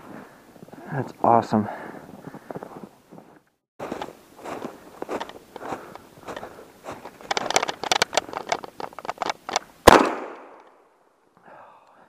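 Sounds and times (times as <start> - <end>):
footsteps crunching through snow: 0.0 - 8.8
shotgun shot: 9.8 - 10.6.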